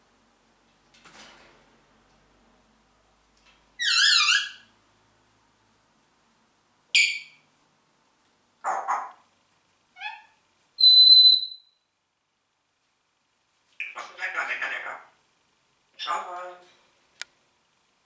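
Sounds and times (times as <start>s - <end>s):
parrot whistling and calling: 3.8s - 4.7s, 7.0s - 7.4s, 10.0s - 11.8s.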